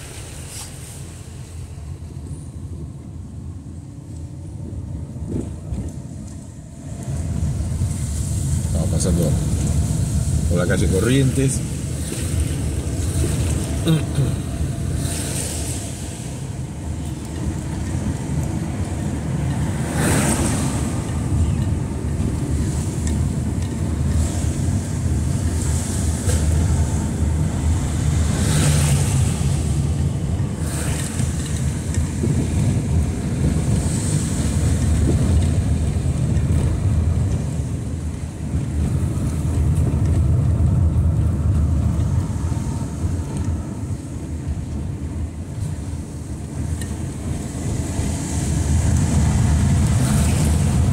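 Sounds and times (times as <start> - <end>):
passing car hiss: 0.0 - 2.4, 7.7 - 16.8, 24.1 - 32.8
car road and engine rumble: 0.0 - 50.9.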